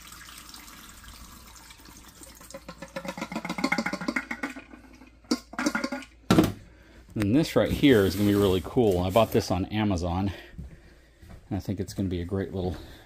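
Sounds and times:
water splashing into sink drain: 0.0 - 6.4.

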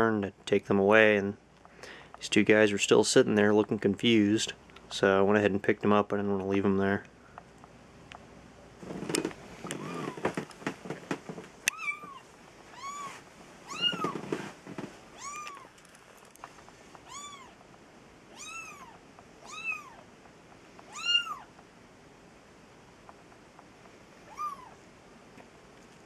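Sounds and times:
kitten mewing: 9.7 - 10.2, 11.7 - 14.2, 15.2 - 15.8, 17.0 - 17.6, 18.3 - 20.0, 20.9 - 21.5, 24.3 - 24.8.

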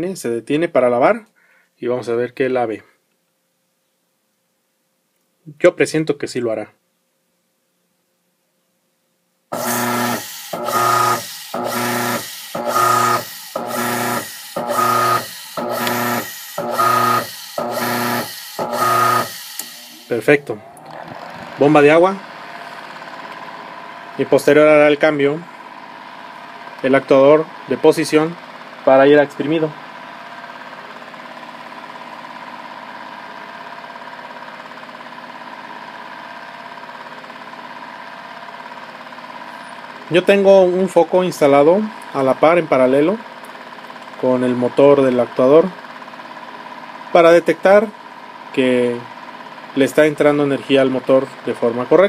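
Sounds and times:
motor humming in bursts: 9.5 - 24.4.

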